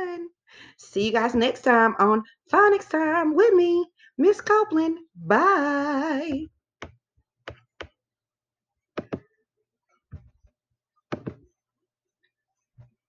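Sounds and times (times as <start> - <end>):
computer clicks and taps: 9.0 - 9.2, 11.1 - 11.4.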